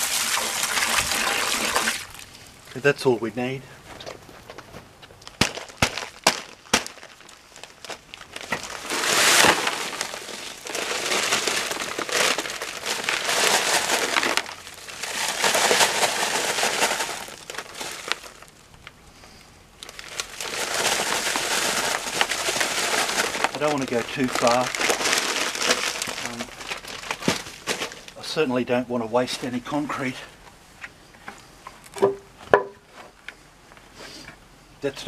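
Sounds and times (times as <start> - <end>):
concrete powder pouring into tub: 0.0 - 2.3, 5.6 - 18.5, 19.8 - 28.2
bag crinkling: 4.0 - 19.0, 19.8 - 28.2.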